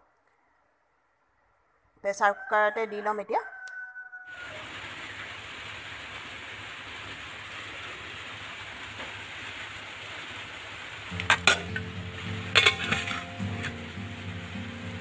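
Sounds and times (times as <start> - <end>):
pressure cooker lid clanking: 11.1 - 11.8, 12.5 - 13.7
soft background music: 11.1 - 15.0.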